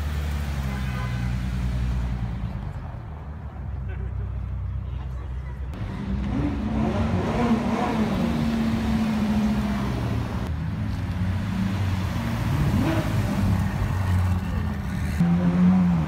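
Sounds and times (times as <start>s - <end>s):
engine revving: 5.8s - 10.5s, 11.2s - 14.4s.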